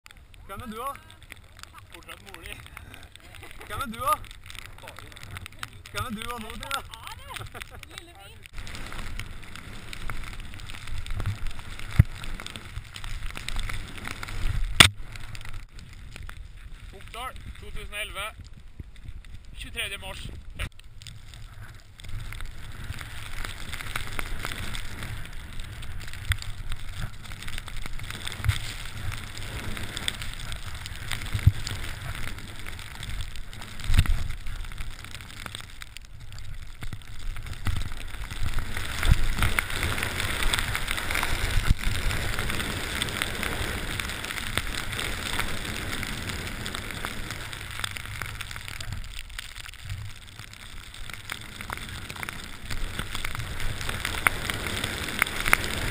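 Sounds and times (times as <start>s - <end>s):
wind rumbling on microphone: 0.0s - 55.9s
skis hissing through powder snow: 1.8s - 15.6s, 21.3s - 35.4s, 37.3s - 49.0s, 51.4s - 55.9s.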